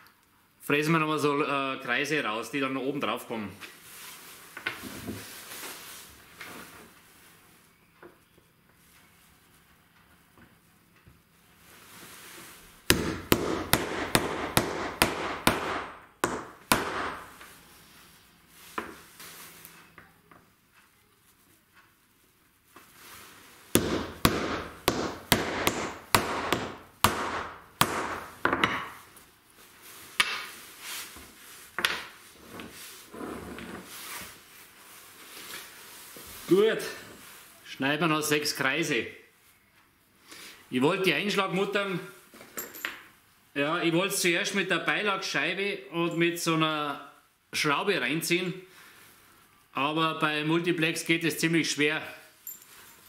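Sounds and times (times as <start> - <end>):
hammer striking metal: 12.9 - 17.3, 23.8 - 28.9.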